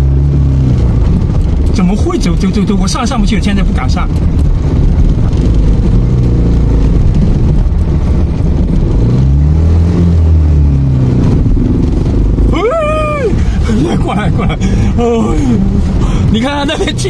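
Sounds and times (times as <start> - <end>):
vehicle driving over gravel: 0.0 - 12.5.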